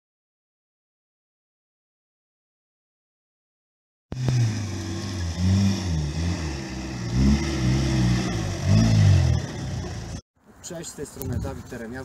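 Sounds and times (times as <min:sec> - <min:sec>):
diesel engine revving: 0:04.1 - 0:10.2.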